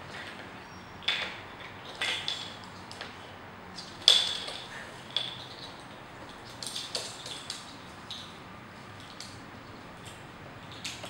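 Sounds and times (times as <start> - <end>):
plastic bottle caps clattering on floor: 1.0 - 3.1, 3.8 - 8.3.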